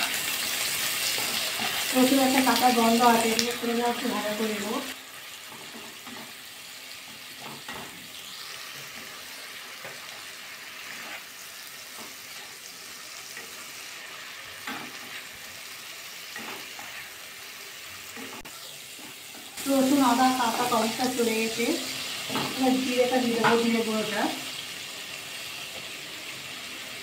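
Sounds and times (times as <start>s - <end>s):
onions sizzling in hot oil: 0.0s - 27.0s
spatula scraping a pan: 10.7s - 12.6s.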